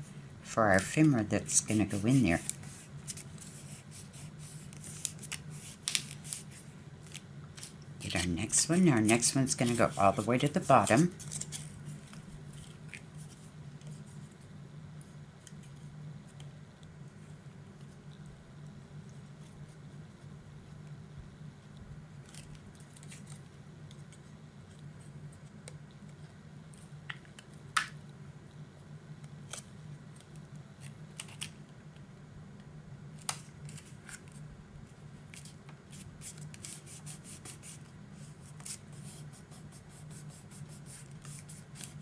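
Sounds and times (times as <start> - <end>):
low steady hum: 0.0 - 42.0
paper crackling: 0.8 - 14.0, 22.2 - 24.2, 40.1 - 42.0.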